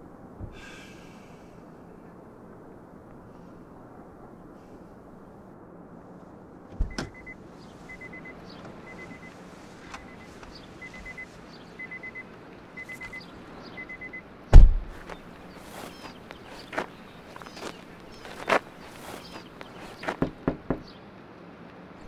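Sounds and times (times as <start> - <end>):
low steady hum: 0.0 - 22.0
car warning chime beeps: 6.9 - 14.2
thumps: 14.5 - 15.2.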